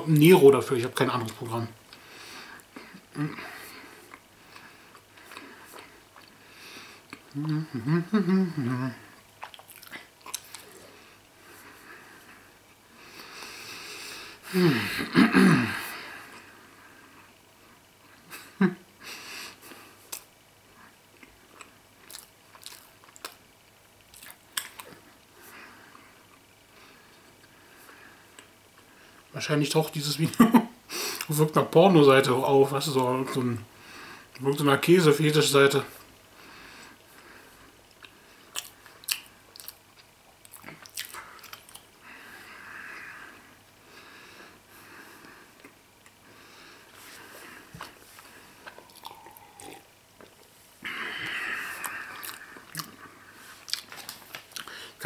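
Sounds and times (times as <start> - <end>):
person chewing with mouth smacks: 9.4 - 10.9, 21.1 - 23.4, 24.0 - 25.1, 37.9 - 41.9, 47.7 - 50.5, 51.7 - 54.8.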